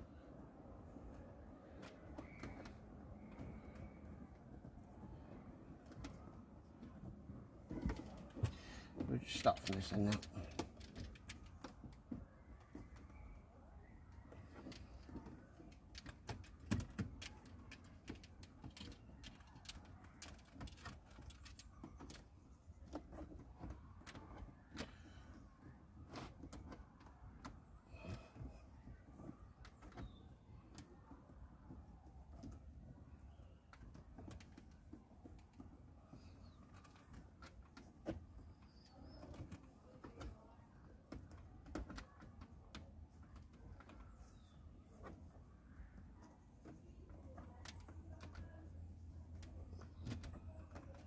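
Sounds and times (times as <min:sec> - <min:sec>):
small clicks and light rubbing: 0:14.2 - 0:51.0.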